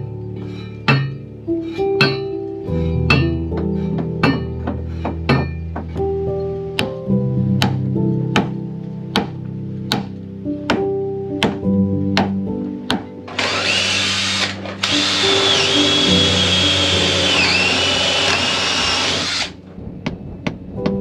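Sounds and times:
cordless drill drilling into wood: 13.3 - 19.6.

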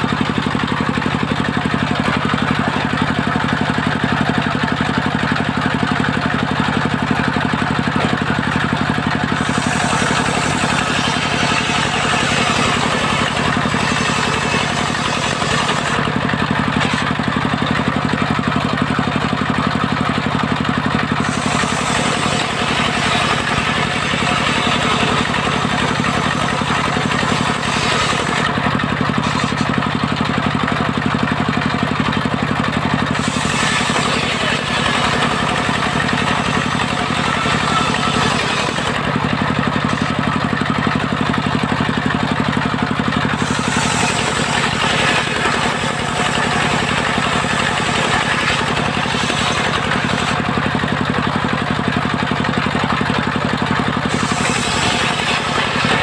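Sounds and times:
circular saw cutting wood: 0.0 - 56.0
low drone of saw drive: 5.5 - 19.0, 20.7 - 30.2, 32.8 - 50.6, 54.0 - 56.0.

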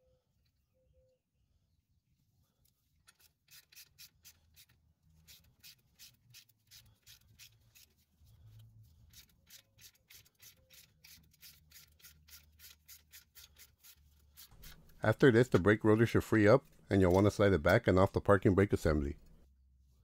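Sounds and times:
ratchet clicking: 9.1 - 15.0.

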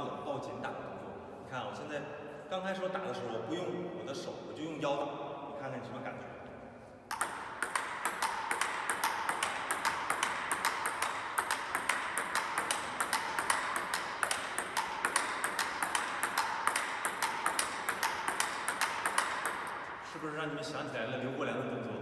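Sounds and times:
table tennis ball clicks: 7.1 - 20.0.

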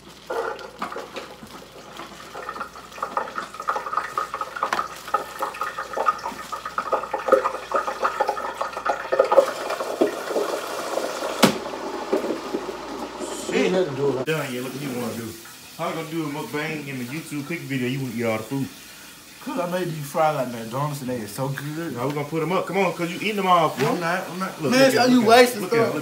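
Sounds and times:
hot oil bubbling and crackling: 0.0 - 26.0
sharp knock: 11.4 - 11.6.

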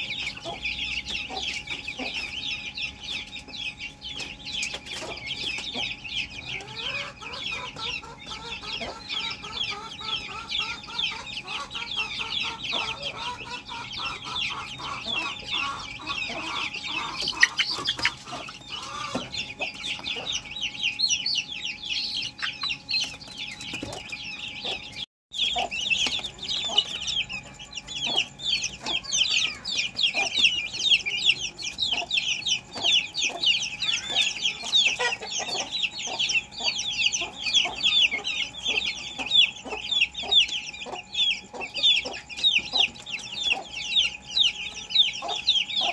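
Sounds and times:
chickens clucking and trilling: 0.0 - 45.9
chicks peeping: 0.0 - 45.9.

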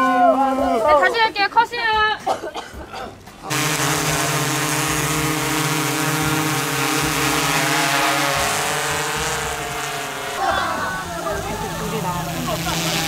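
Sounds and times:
drone propellers buzzing: 3.5 - 13.0.

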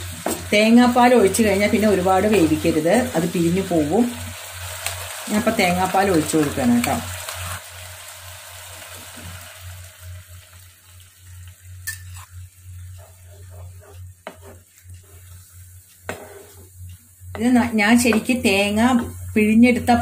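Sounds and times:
soft sizzle in pan: 0.0 - 20.0
utensils scraping and tapping: 12.9 - 18.4.

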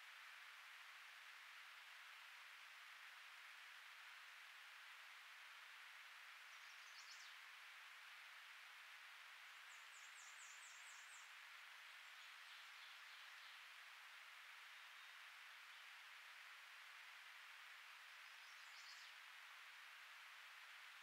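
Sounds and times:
steady hiss: 0.0 - 21.0
songbird calls: 6.5 - 7.4, 9.6 - 13.6, 18.2 - 19.2.

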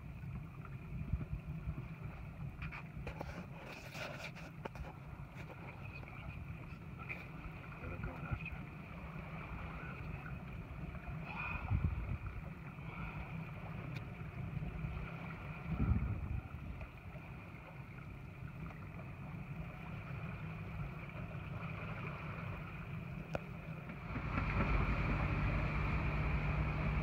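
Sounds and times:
boat engine idling: 4.6 - 27.0.

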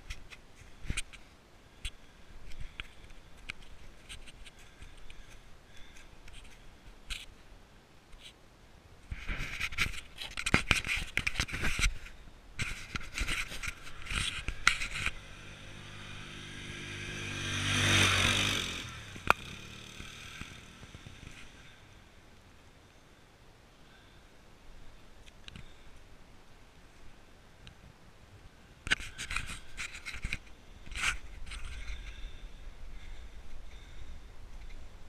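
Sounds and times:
scraping at the microphone: 9.1 - 16.3, 28.9 - 32.3
distant atv engine: 11.4 - 22.5, 28.9 - 35.0.

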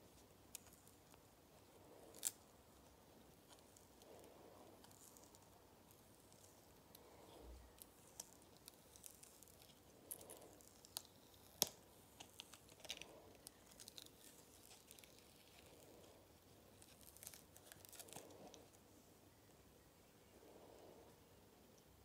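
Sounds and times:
silicone mould crackling off resin: 7.7 - 16.1.

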